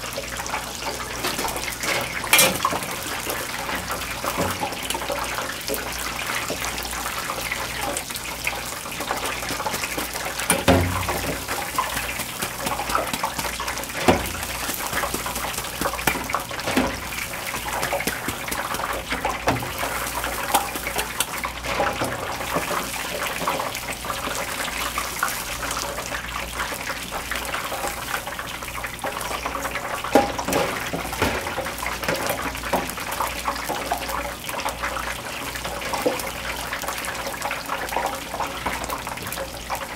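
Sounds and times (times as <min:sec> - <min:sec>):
deep-frying sizzle in hot oil: 0:00.0 - 0:39.9.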